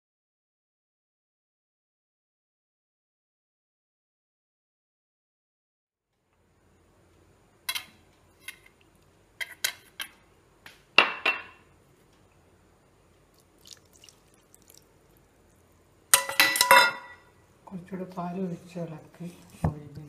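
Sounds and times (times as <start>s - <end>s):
metal spoon clinking in steel bowl: 16.1s - 17.3s.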